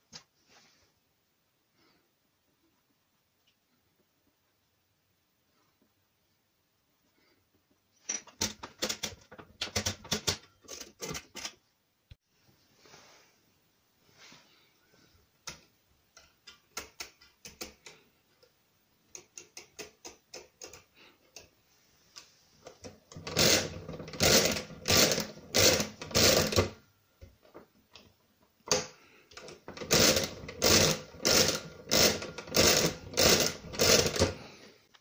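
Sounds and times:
hand crank clattering: 0:23.1 - 0:26.7, 0:29.4 - 0:34.4.

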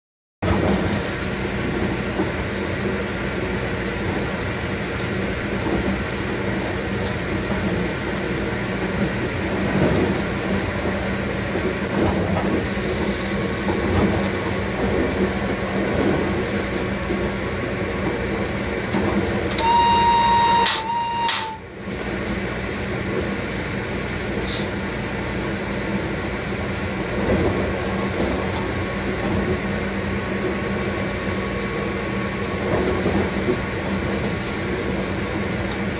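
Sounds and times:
locomotive cab hum: 0:00.4 - 0:35.9
wheel-on-rail rumble: 0:00.4 - 0:35.9
high-pitched tone: 0:19.6 - 0:21.6.

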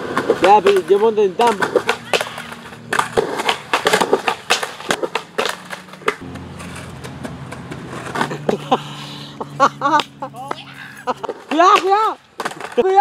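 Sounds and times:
skateboard clattering on concrete: 0:00.0 - 0:08.8, 0:10.0 - 0:13.0.

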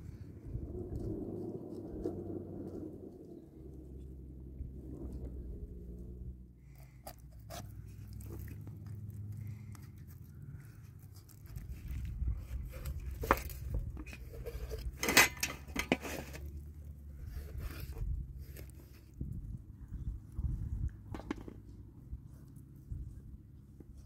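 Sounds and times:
knife cutting raw chicken: 0:06.8 - 0:08.3.

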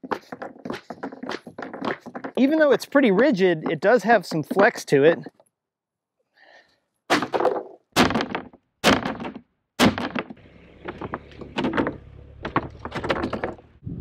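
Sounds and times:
plastic striking concrete: 0:00.0 - 0:04.7, 0:07.1 - 0:13.7
car engine hum: 0:10.4 - 0:14.0.

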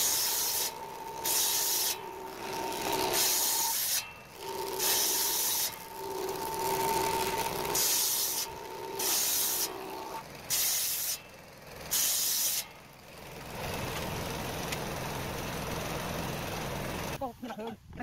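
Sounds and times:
table saw blade whining: 0:00.0 - 0:12.8
saw cutting wood: 0:00.0 - 0:17.2.

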